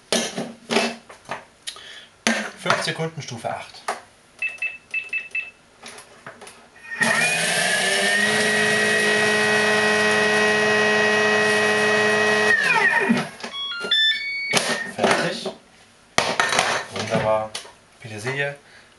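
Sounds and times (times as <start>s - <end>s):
blender motor whining: 6.8s - 14.0s
short beeps: 12.8s - 15.0s.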